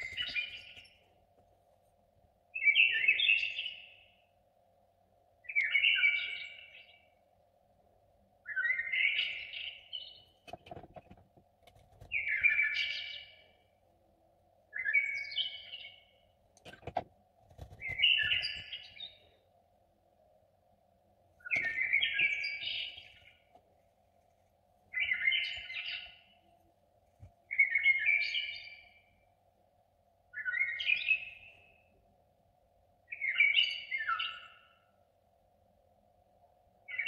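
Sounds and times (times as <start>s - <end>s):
songbird chirping: 0.0s - 1.5s, 2.5s - 4.4s, 5.3s - 7.3s, 8.4s - 11.2s, 11.9s - 16.8s, 17.5s - 19.6s, 21.3s - 29.4s, 30.3s - 32.1s, 33.0s - 35.0s
faint steady hum: 0.0s - 37.0s.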